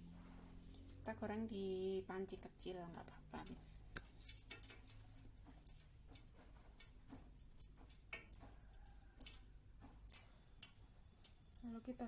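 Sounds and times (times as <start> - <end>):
low steady hum: 0.0 - 12.0
faint irregular ticks: 3.4 - 12.0.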